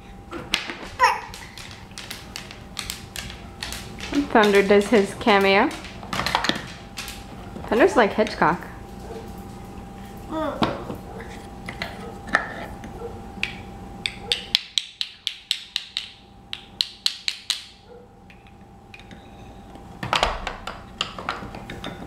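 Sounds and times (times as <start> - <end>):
wooden toy pieces clacking: 14.3 - 19.1.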